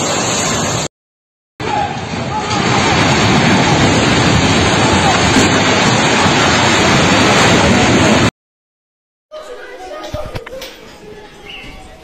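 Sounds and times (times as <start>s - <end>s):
building collapsing roar: 0.0s - 0.9s, 1.6s - 8.3s.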